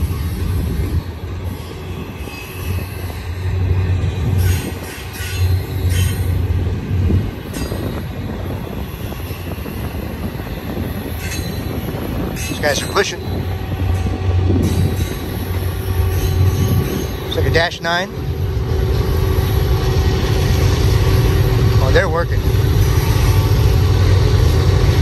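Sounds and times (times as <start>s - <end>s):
high wheel squeals: 0.0s - 3.6s, 7.3s - 18.0s, 22.7s - 23.8s
train wheels rumbling on rail: 0.0s - 25.0s.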